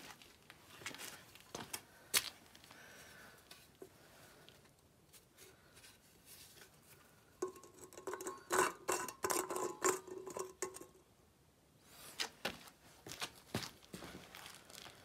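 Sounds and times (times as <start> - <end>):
can taps: 7.4 - 11.0
metal cans clinking on concrete: 7.4 - 11.0.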